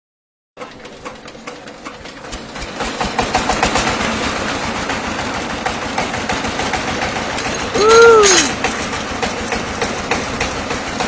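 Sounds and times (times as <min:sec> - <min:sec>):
diesel engine chugging: 0:00.6 - 0:11.0.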